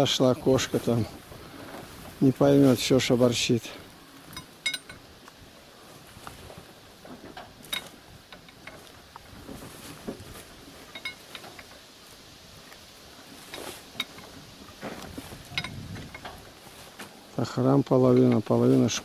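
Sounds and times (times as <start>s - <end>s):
metallic clinks and knocks: 4.3s - 5.1s, 7.3s - 8.9s, 10.8s - 11.8s, 13.4s - 14.4s, 15.4s - 16.5s.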